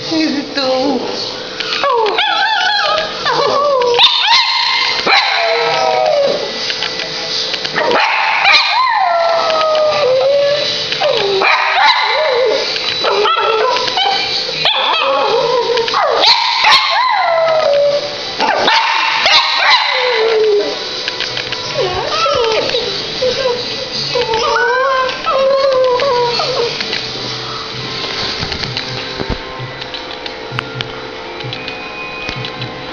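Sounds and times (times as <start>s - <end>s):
dog howling: 1.7s - 6.6s, 7.8s - 21.0s, 21.6s - 26.9s.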